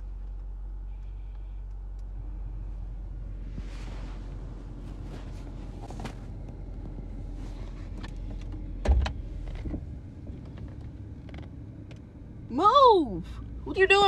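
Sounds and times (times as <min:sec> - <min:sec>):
low rumble inside a car: 0:00.0 - 0:14.0
heavy thump: 0:08.8 - 0:09.8.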